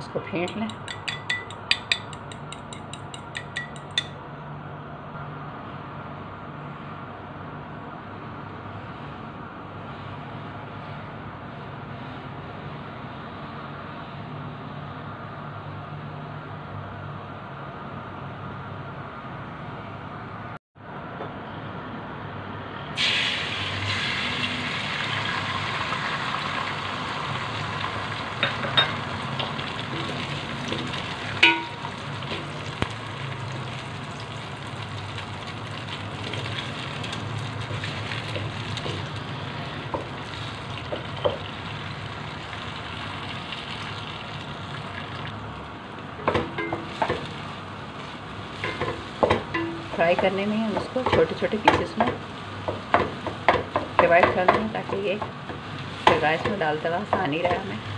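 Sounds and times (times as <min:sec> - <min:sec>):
spatula scraping and clattering: 0:00.4 - 0:04.1
spatula knocking against pot: 0:00.4 - 0:04.2, 0:31.4 - 0:31.9, 0:48.6 - 0:55.4
eggs sizzling in hot oil: 0:23.0 - 0:46.0.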